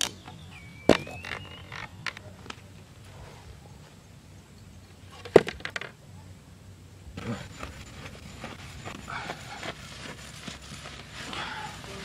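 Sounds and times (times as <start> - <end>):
rustling and scraping: 7.2 - 12.0.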